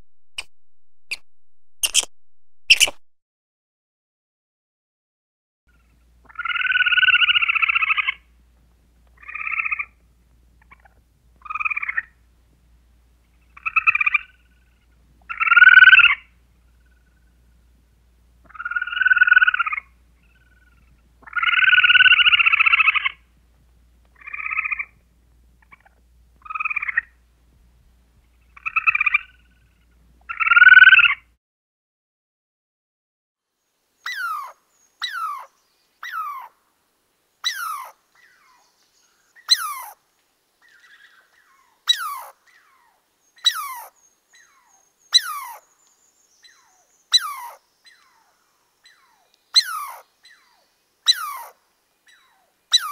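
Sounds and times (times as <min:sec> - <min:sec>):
squirrel rasping calls: 0:01.8 - 0:02.1, 0:02.7 - 0:03.0, 0:05.7 - 0:08.3, 0:09.2 - 0:10.0, 0:10.6 - 0:12.2, 0:13.4 - 0:17.2, 0:18.4 - 0:23.2, 0:24.2 - 0:25.0, 0:25.6 - 0:27.2, 0:28.4 - 0:31.2, 0:34.1 - 0:36.5, 0:37.4 - 0:38.6, 0:39.4 - 0:40.0, 0:40.7 - 0:45.7, 0:46.4 - 0:52.9.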